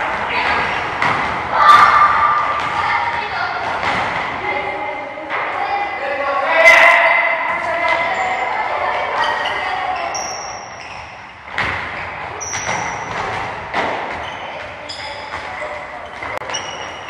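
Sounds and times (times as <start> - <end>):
children's voices: 1.5 - 6.6, 7.8 - 10.1
short high squeaks: 9.2 - 11.4, 12.0 - 13.1, 16.2 - 17.0.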